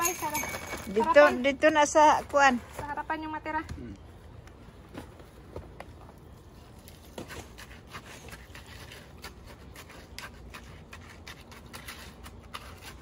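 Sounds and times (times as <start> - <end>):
trowel scraping concrete: 6.8 - 13.0.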